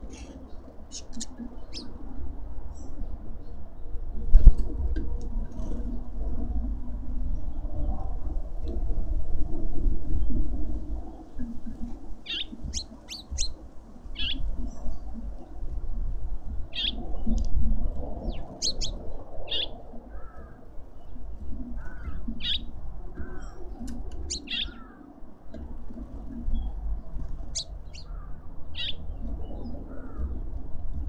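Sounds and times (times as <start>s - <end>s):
small birds chirping: 0.0s - 2.0s, 11.7s - 15.6s, 16.5s - 17.5s, 18.2s - 25.6s, 26.2s - 30.4s
wind rumble on microphone: 0.0s - 31.0s.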